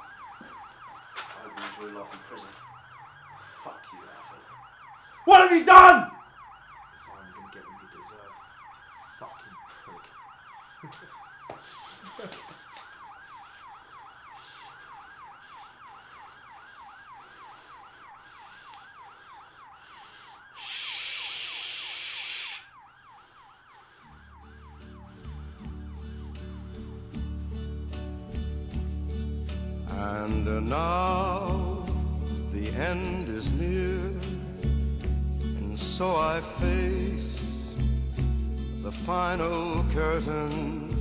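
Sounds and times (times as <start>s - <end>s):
police siren yelping: 0.0s - 33.1s
loud burst of hiss: 20.6s - 22.7s
music: 24.5s - 41.0s.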